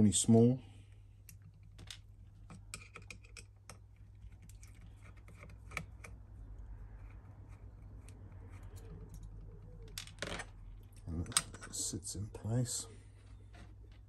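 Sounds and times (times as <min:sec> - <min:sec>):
low steady hum: 0:00.0 - 0:14.0
screwdriver clicks and scrapes: 0:02.5 - 0:06.2.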